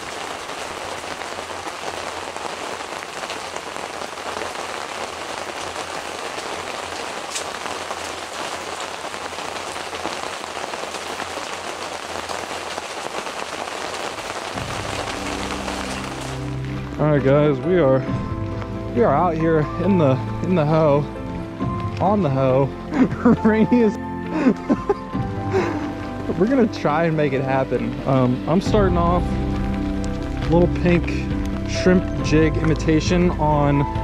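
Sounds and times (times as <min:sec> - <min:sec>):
rain on a fabric roof: 0:00.0 - 0:34.0
low music: 0:14.5 - 0:34.0.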